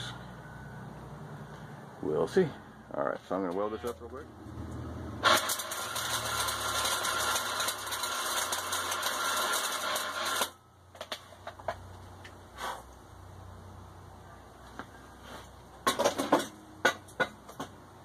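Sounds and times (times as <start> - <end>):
welder arc crackling: 5.2 - 10.6.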